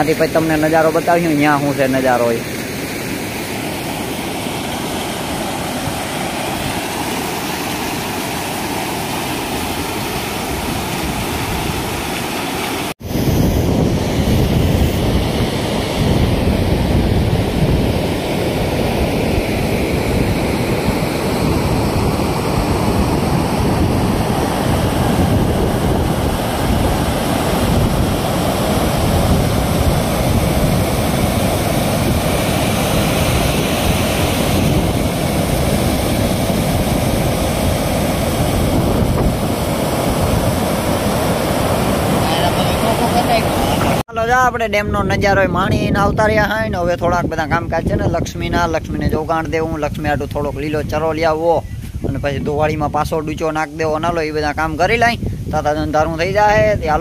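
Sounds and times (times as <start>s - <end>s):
floodwater rushing over spillway: 0.0s - 13.0s, 13.8s - 44.1s
wind buffeting microphone: 3.8s - 12.2s, 13.0s - 57.0s.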